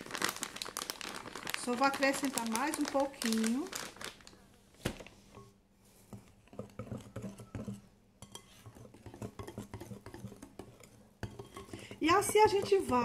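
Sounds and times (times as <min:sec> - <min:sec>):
whisk scraping glass bowl: 0:06.1 - 0:13.0.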